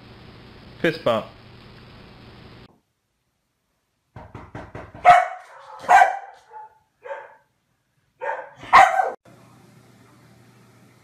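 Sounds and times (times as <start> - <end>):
dog barking: 5.0 - 7.5, 8.2 - 9.2.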